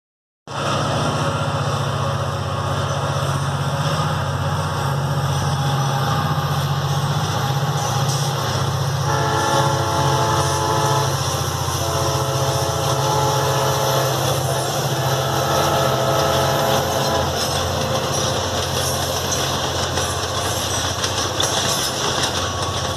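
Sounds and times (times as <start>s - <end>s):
locomotive engine drone: 0.5s - 22.9s
freight wagons rolling: 16.9s - 22.9s.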